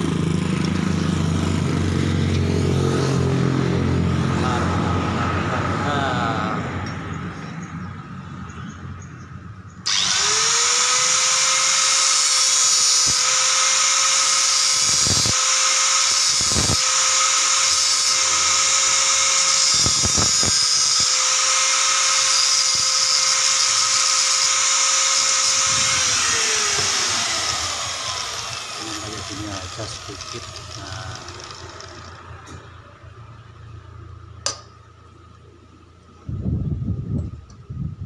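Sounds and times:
angle grinder whining: 0.0 - 5.1, 9.8 - 33.0.

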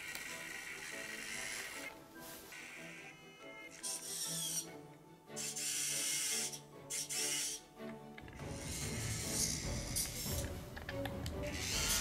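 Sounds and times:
hissing motor whir: 0.0 - 7.6, 8.3 - 10.5, 11.3 - 12.0
background music: 0.0 - 12.0.

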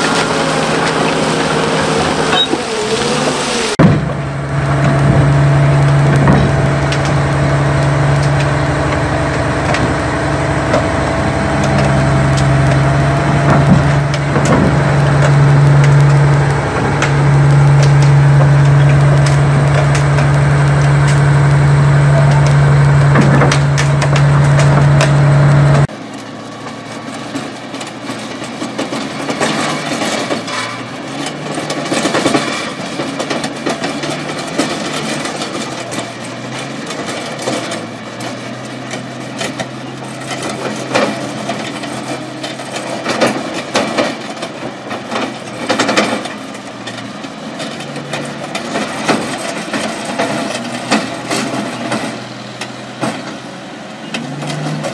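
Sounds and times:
diesel engine drone: 0.0 - 54.9
clattering of rock: 3.8 - 25.9
metal clanks and creaks: 3.8 - 54.9.

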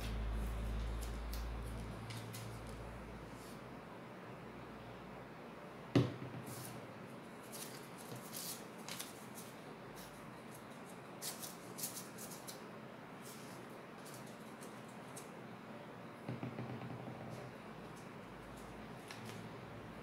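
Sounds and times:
knock on wooden tabletop: 16.3 - 17.5.

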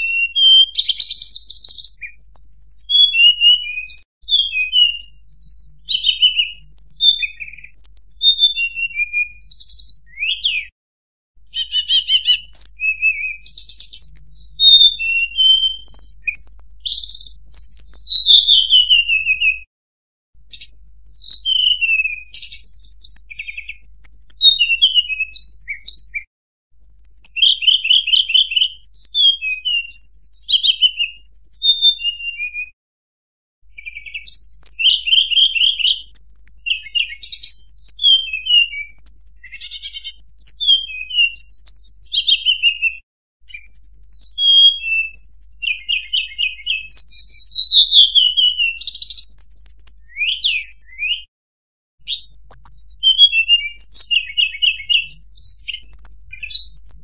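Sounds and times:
flycatcher singing whistled notes: 0.0 - 10.7, 11.5 - 19.6, 20.5 - 32.8, 33.7 - 51.3, 52.0 - 57.0.

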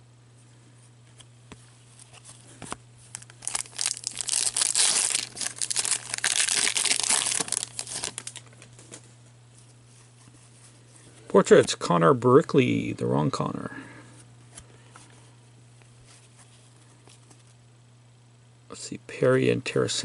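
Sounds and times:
foil wrapper crackling: 3.1 - 8.7.

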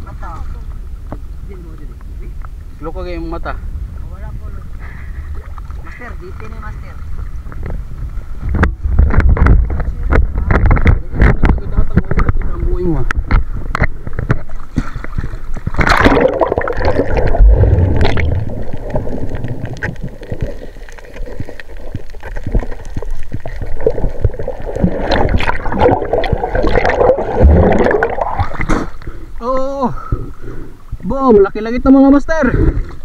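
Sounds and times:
sea water gurgling and sloshing: 0.0 - 33.0.

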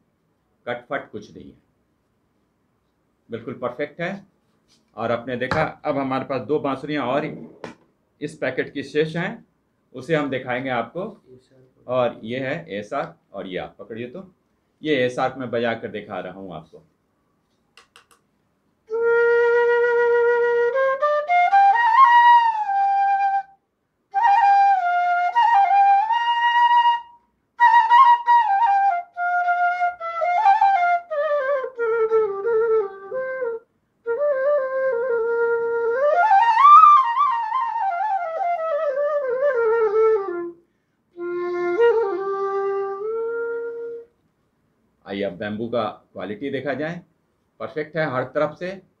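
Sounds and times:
bamboo flute melody: 18.9 - 40.6, 41.2 - 44.1.

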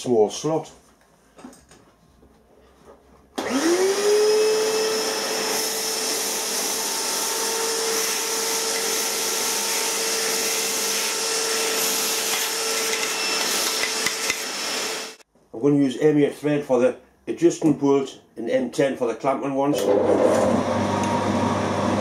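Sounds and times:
shop vacuum motor whining: 3.4 - 15.2, 19.7 - 22.0
nozzle sucking metal chips: 5.4 - 15.2.

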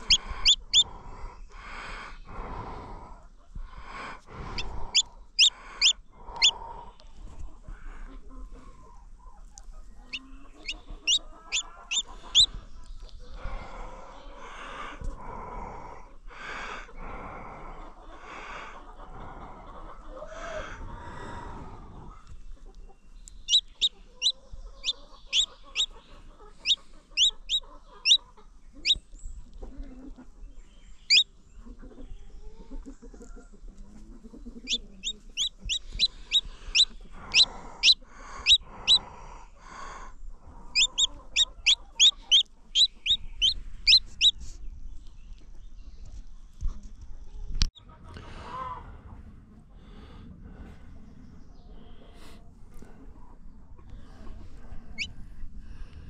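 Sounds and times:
low clucking: 0.0 - 1.0, 4.0 - 6.6, 7.4 - 13.2, 22.6 - 30.3, 31.1 - 39.1, 40.5 - 44.3
baby chicks peeping: 0.0 - 2.3, 3.5 - 13.7, 22.1 - 48.8, 51.4 - 55.2.

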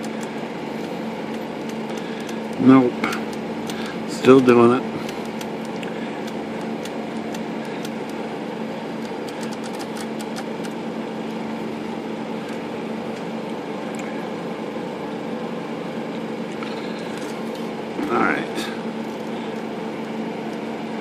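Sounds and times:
steady hum: 0.0 - 21.0
typewriter metal clicks: 9.0 - 10.8.

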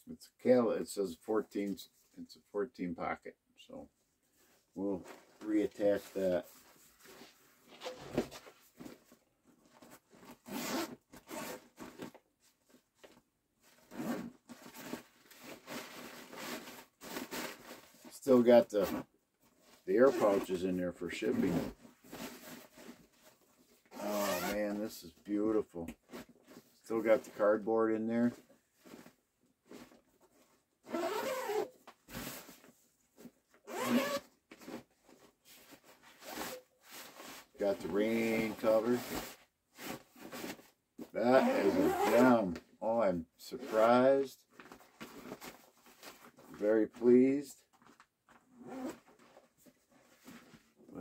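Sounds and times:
zipper rasping open: 10.4 - 11.7, 13.9 - 17.6, 23.9 - 24.6, 30.9 - 32.4, 33.7 - 34.3, 41.3 - 42.4, 48.6 - 49.0.

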